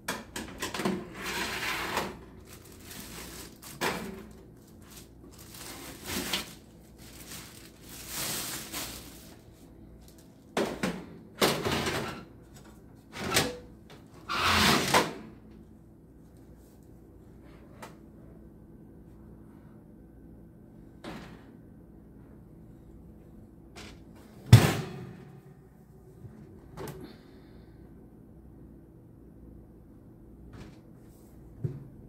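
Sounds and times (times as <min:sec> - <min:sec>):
metal trays scraping and clattering: 0:00.6 - 0:02.3.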